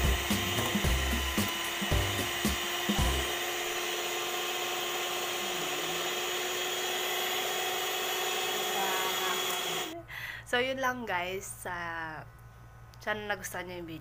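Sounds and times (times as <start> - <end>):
hand mixer motor whine: 0.0 - 10.0.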